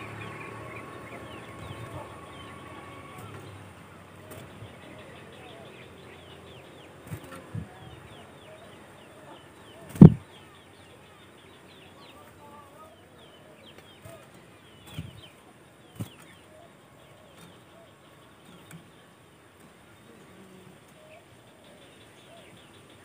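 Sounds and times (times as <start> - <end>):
bird wingbeats: 6.7 - 8.3, 13.7 - 16.7
bird landing thumps: 9.8 - 10.2.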